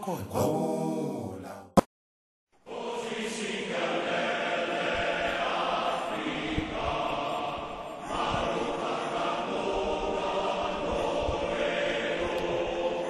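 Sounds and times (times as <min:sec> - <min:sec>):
group of voices singing: 0:02.6 - 0:13.0.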